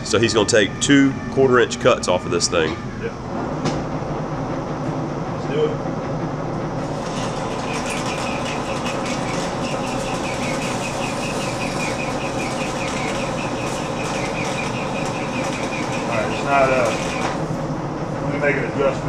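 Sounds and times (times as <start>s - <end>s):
lathe motor humming: 3.2s - 19.0s
tool cutting steel ticks: 7.0s - 17.4s.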